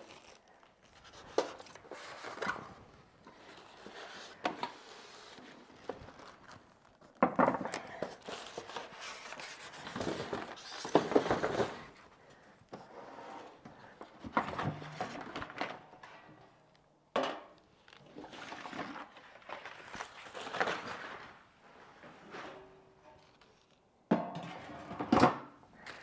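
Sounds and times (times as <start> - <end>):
styrofoam and cardboard rustling: 0.0 - 7.2, 7.9 - 12.2, 17.8 - 23.8.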